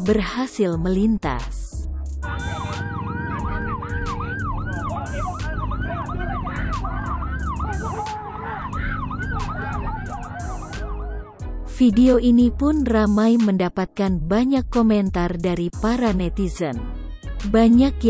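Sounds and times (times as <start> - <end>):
ambulance siren: 2.2 - 11.5.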